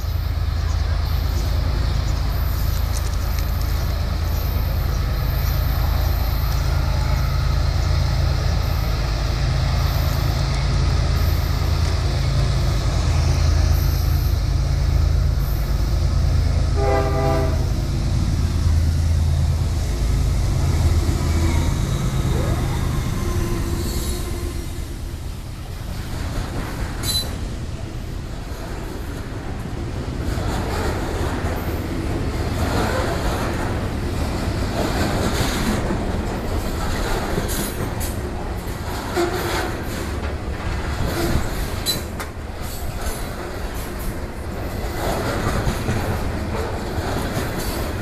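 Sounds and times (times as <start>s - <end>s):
freight cars rolling: 0.0s - 48.0s
freight train rumbling past: 0.0s - 48.0s
train horn blast: 16.7s - 17.9s.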